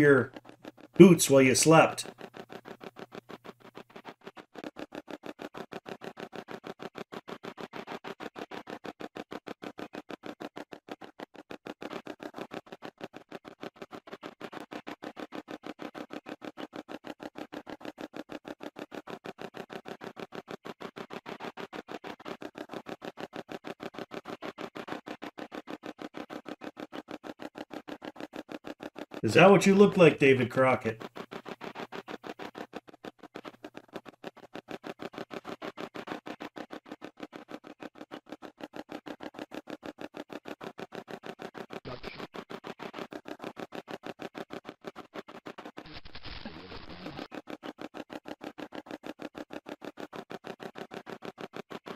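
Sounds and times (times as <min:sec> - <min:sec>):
choppy stream of sound fragments: 0:00.0 - 0:51.9
chopping hissy bursts: 0:01.0 - 0:02.1.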